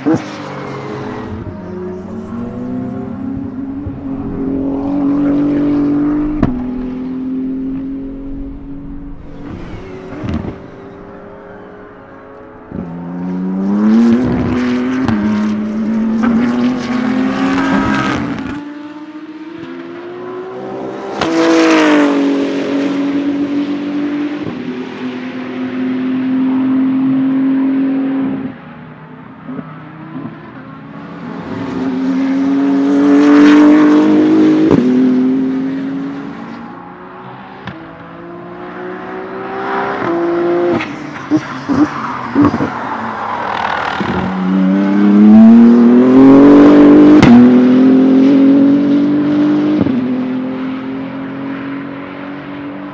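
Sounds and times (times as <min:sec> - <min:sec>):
race car passing by: 0:00.0 - 0:28.4
race car accelerating: 0:00.0 - 0:52.9.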